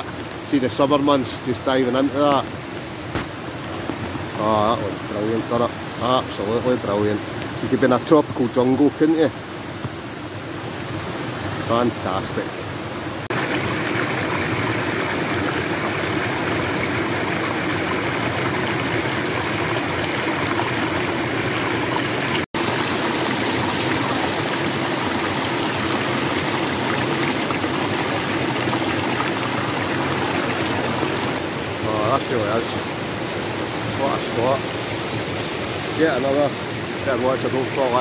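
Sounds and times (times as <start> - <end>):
river rushing over rocks: 10.9 - 38.0.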